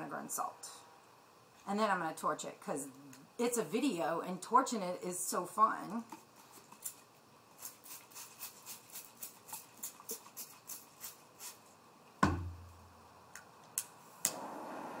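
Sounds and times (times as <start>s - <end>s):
loud thump: 12.2s - 12.6s.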